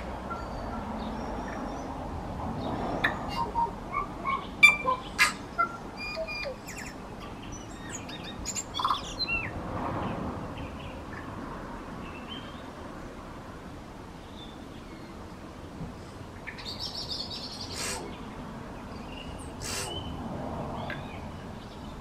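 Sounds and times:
bird singing whistled notes: 0:03.0 - 0:09.5.

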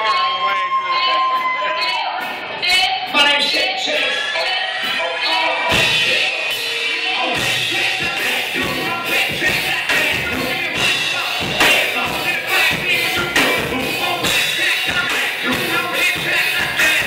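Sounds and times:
live band with singers: 0:00.0 - 0:17.0.

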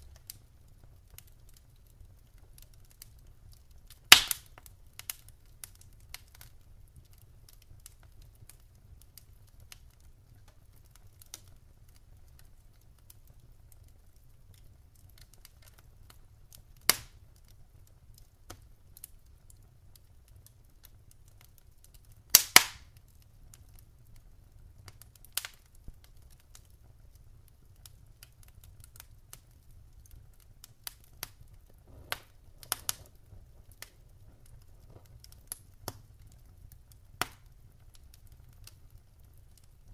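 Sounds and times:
sharp snaps: 0:04.1 - 0:05.1, 0:16.9 - 0:17.2, 0:22.3 - 0:22.9.

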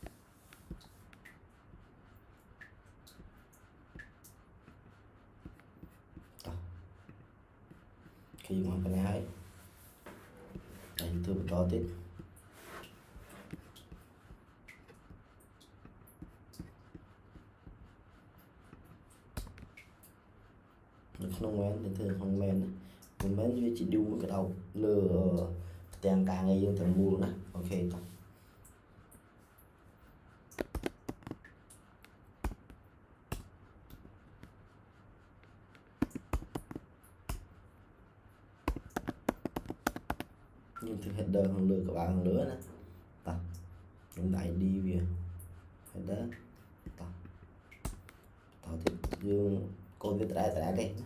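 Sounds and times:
keyboard and mouse clicks: 0:30.6 - 0:31.4, 0:35.8 - 0:37.5, 0:38.7 - 0:40.3, 0:48.8 - 0:49.3.

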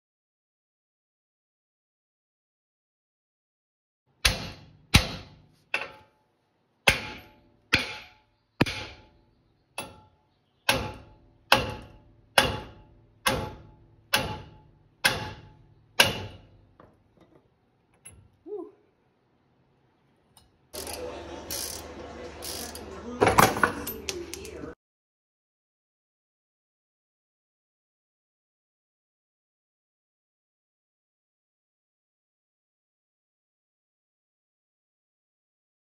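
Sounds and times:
hammer striking metal: 0:04.2 - 0:06.1, 0:06.8 - 0:09.2, 0:09.8 - 0:16.5.

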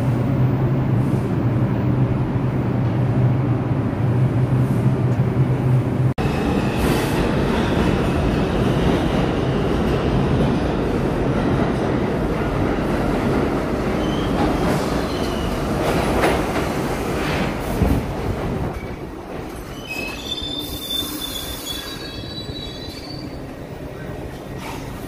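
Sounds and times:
subway train wheels rumbling: 0:00.0 - 0:25.0
wheels and brakes squealing: 0:19.6 - 0:23.5.

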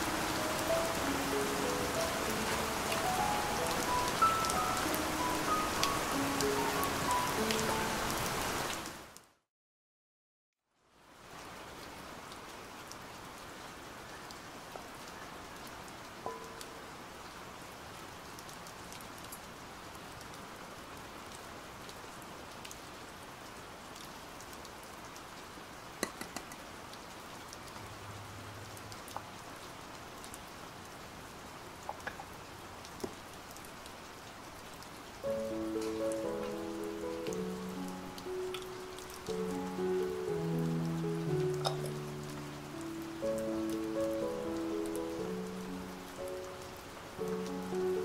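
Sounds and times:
steady rain: 0:00.0 - 0:09.4, 0:10.8 - 0:48.0.

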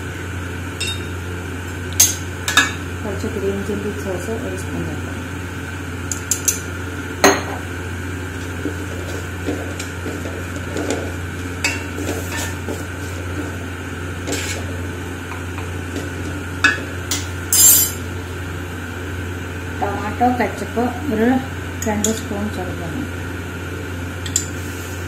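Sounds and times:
steady low hum: 0:00.0 - 0:25.0
spatula scraping vegetables in pan: 0:11.8 - 0:13.6, 0:14.2 - 0:14.8.

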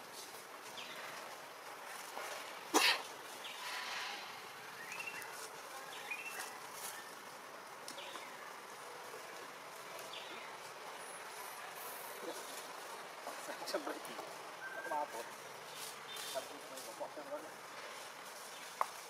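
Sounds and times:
sharp burst of noise: 0:03.5 - 0:04.8.

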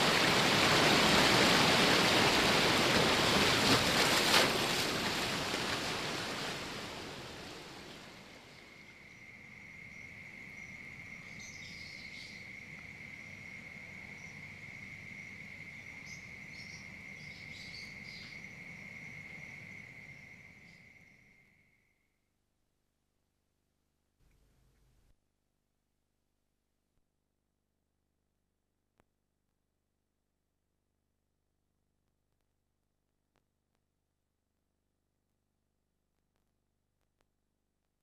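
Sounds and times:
cricket trilling: 0:07.5 - 0:22.2.

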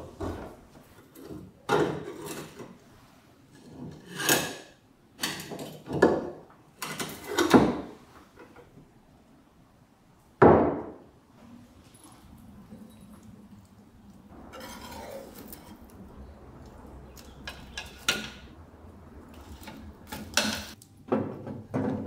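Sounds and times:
metal lid clunking and scraping: 0:14.4 - 0:15.9, 0:17.2 - 0:18.5, 0:19.3 - 0:22.0.

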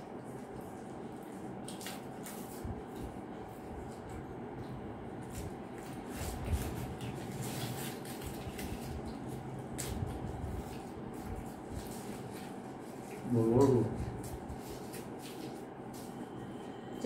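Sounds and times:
low room hum: 0:00.0 - 0:17.0
paper wrappers rustling: 0:05.2 - 0:16.2.

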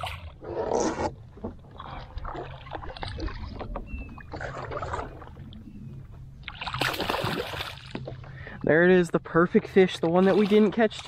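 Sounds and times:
low steady rumble: 0:00.0 - 0:11.0
water splashing and sloshing: 0:00.0 - 0:11.0.

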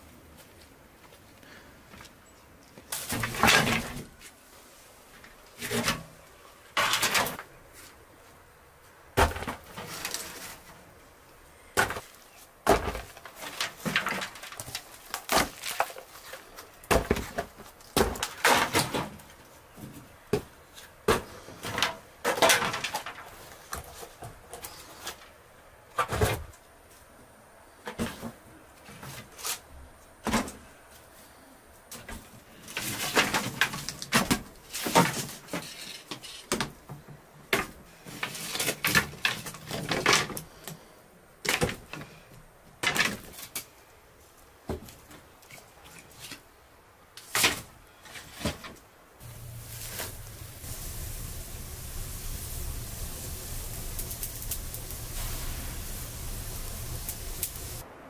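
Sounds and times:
firewood sticks clattering: 0:21.6 - 0:25.2, 0:49.2 - 0:57.8.

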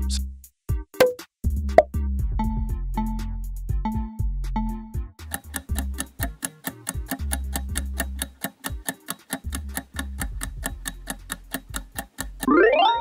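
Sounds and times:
fast even ticking: 0:05.2 - 0:12.6.

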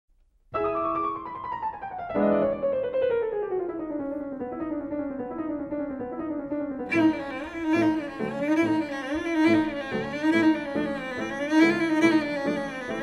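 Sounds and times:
piano melody descending: 0:00.6 - 0:13.0.

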